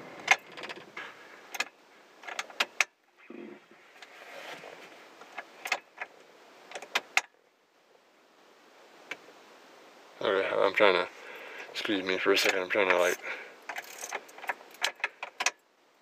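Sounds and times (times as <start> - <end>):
sharp clicks of keys and switches: 12.4 - 15.6.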